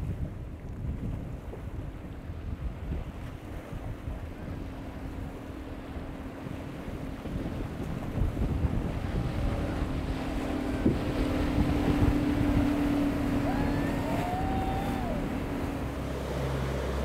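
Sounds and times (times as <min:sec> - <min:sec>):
outboard motor drone: 0:00.0 - 0:17.0
wind buffeting microphone: 0:00.0 - 0:17.0.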